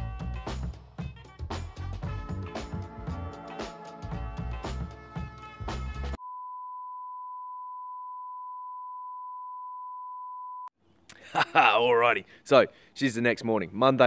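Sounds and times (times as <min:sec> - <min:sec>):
background music with steady beat: 0:00.0 - 0:06.2.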